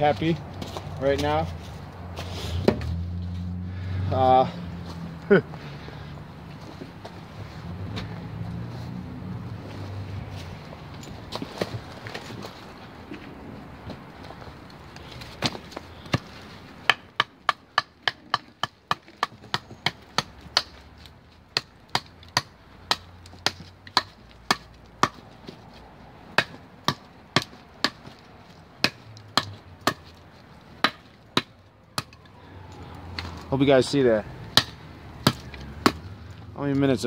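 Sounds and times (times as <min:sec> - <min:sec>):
knife chopping wooden pole: 0:02.6 - 0:03.0, 0:15.4 - 0:25.6, 0:26.3 - 0:28.2, 0:28.8 - 0:30.2, 0:30.8 - 0:32.2, 0:34.5 - 0:36.1.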